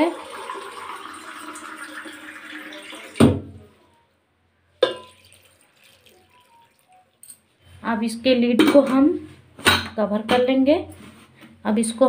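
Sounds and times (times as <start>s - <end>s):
water pouring into pressure cooker: 0.0s - 3.2s, 5.0s - 7.0s.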